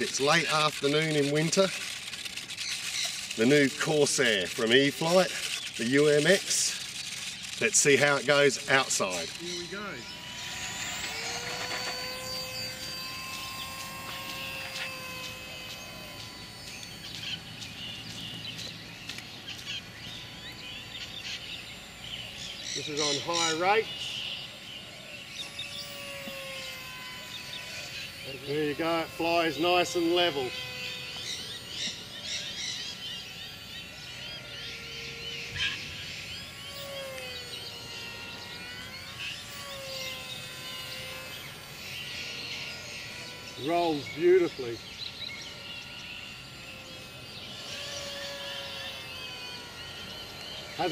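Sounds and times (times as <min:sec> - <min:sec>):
birds chirping: 0:00.0 - 0:50.9
model plane high whine: 0:00.0 - 0:50.9.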